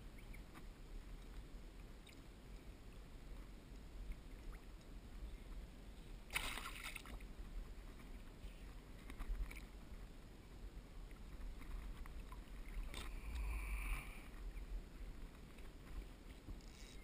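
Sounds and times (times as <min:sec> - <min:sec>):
faint ticks: 0:11.0 - 0:17.0.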